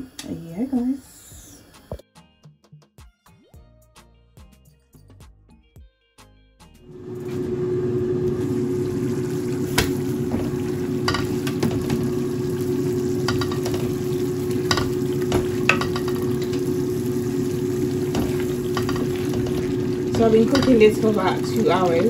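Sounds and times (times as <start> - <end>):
pot boiling and spattering: 6.9 - 22.0
steady hum: 6.9 - 22.0
wooden spoon knocking against pot: 9.8 - 12.1, 13.2 - 16.7, 18.0 - 22.0.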